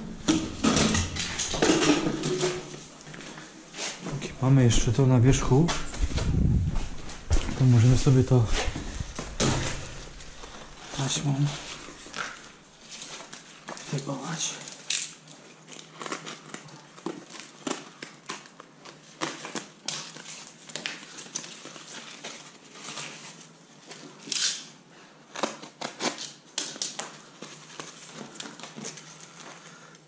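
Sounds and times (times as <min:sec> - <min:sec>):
foil tape crinkling: 0:08.7 - 0:30.0.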